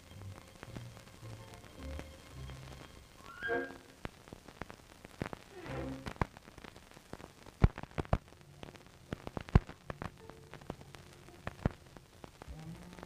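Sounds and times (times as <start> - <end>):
film soundtrack crackling: 0.0 - 13.0
sharp pops: 3.2 - 12.5.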